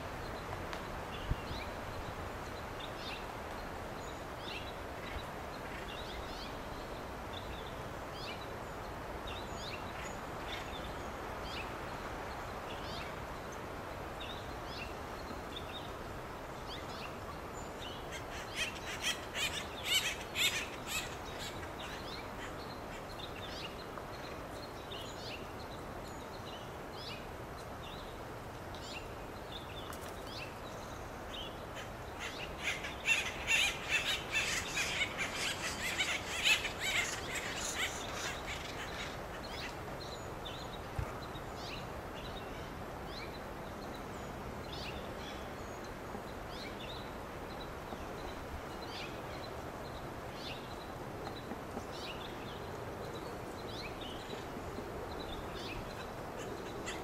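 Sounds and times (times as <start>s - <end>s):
background hiss: 0.0s - 57.0s
woodpeckers calling: 18.1s - 23.6s, 31.6s - 40.0s.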